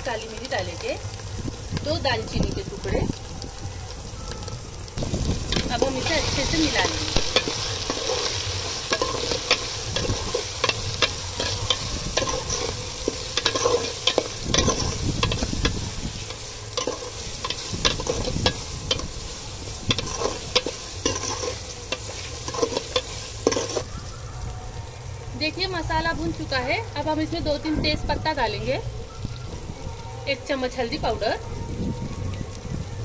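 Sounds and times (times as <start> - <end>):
masala sizzling in hot oil: 0.0 - 33.0
metal spatula scraping pot: 5.5 - 19.2, 19.9 - 23.9.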